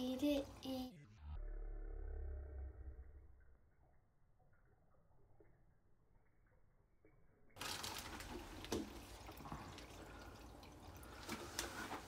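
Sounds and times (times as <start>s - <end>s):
small drips: 3.1s - 12.0s
water trickling from filter: 3.3s - 12.0s.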